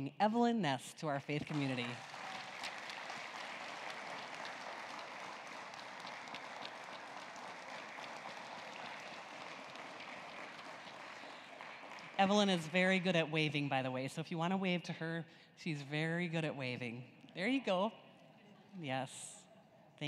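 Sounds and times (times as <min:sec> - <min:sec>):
crowd applauding: 0:01.5 - 0:13.0.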